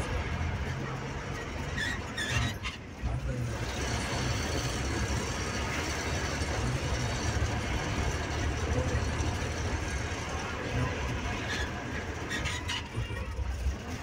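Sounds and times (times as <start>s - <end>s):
bus engine droning: 0.0s - 14.0s
road and tyre noise: 0.0s - 14.0s.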